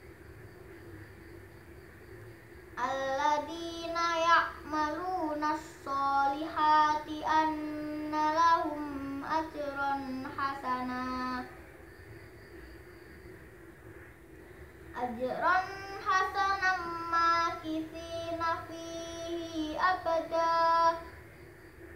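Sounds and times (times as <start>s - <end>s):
boy chanting recitation: 2.8s - 11.7s, 14.9s - 21.2s.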